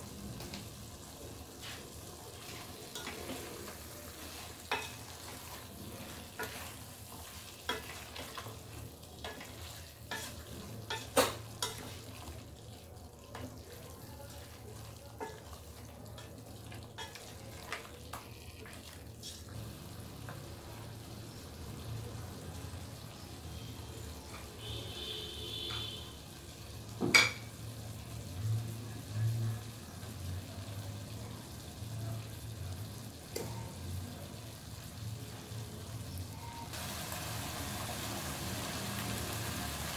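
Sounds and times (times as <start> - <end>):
curry sizzling in a metal pot: 0.0 - 39.9
spoon stirring and scraping a pot: 1.5 - 12.5, 14.4 - 19.6.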